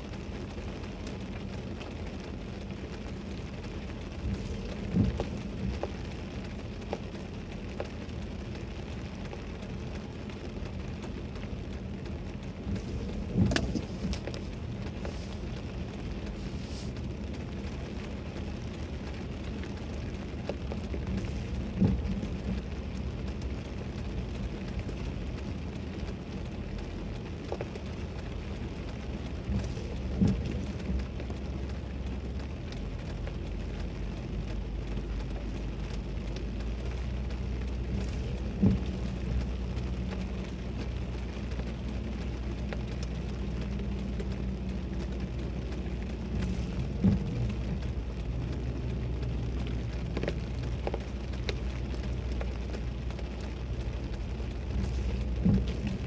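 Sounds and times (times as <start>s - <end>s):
rain on car: 0.0s - 56.0s
windshield wiper knock: 4.2s - 5.9s, 12.7s - 14.3s, 21.6s - 22.6s, 37.9s - 39.2s, 46.3s - 47.9s, 54.8s - 56.0s.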